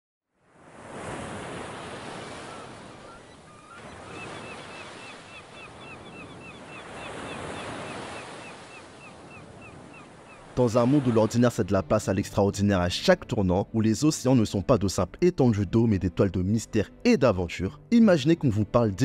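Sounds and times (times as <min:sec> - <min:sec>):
ocean surf: 0:00.4 - 0:11.8
gulls crying: 0:02.1 - 0:11.6.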